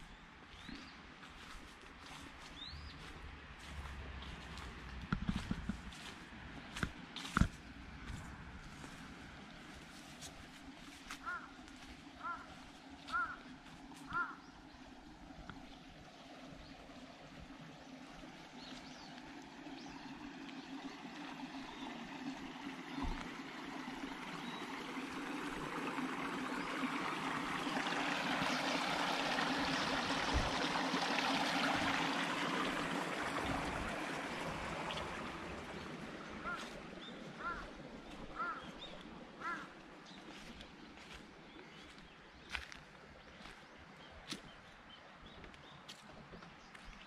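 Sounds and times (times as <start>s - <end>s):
stream water running: 0.0s - 47.0s
duck quacking: 13.1s - 13.4s.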